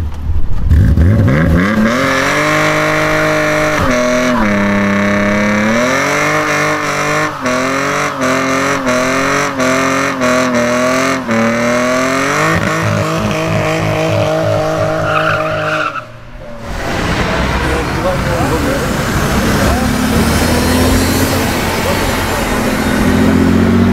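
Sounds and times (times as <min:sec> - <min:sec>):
engine revving high: 0:00.7 - 0:23.9
tyre squealing: 0:12.4 - 0:16.8.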